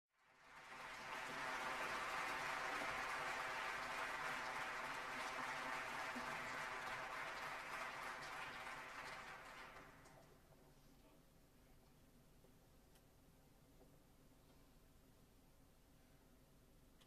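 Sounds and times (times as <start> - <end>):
audience applauding: 0.2 - 10.3.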